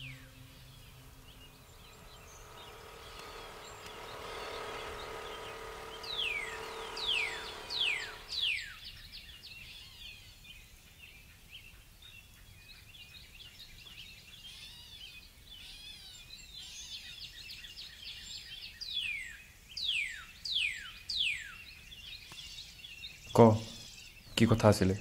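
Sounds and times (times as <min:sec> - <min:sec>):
low background rumble: 0:00.0 - 0:08.6
downward sweeping bird whistle: 0:00.0 - 0:09.1
birds chirping: 0:00.0 - 0:09.9.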